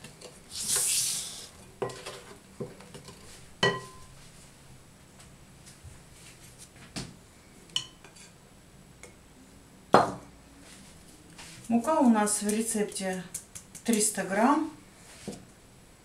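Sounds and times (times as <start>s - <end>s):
kitchenware clinking on glass bowls: 3.6s - 4.1s.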